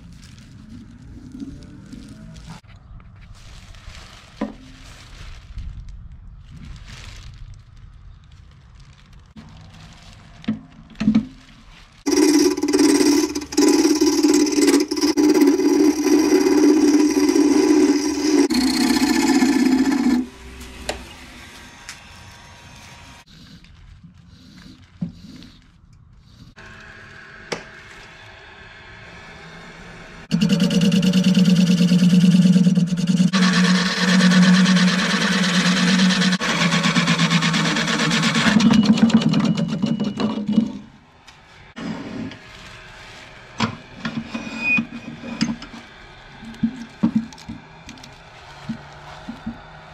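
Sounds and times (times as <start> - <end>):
lathe tool scraping wood: 12.1 - 23.3, 30.3 - 39.8.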